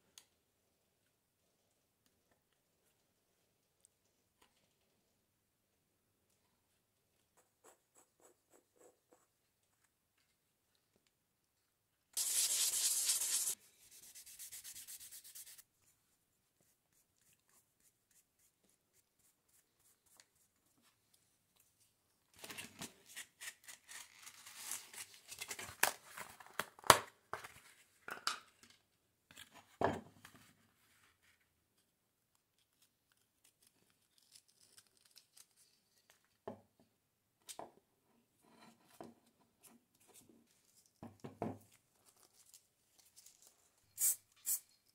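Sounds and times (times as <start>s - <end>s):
wood scrubbing on sandpaper: 12.2s - 15.6s.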